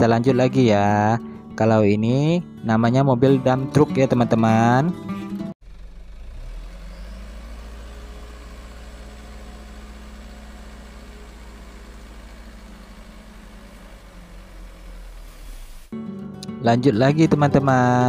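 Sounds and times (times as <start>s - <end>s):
diesel truck engine running: 5.0s - 15.9s.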